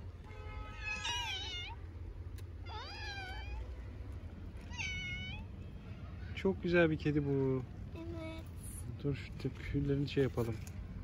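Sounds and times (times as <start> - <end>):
kitten meowing: 0.7 - 1.9, 2.6 - 3.7, 4.6 - 5.5.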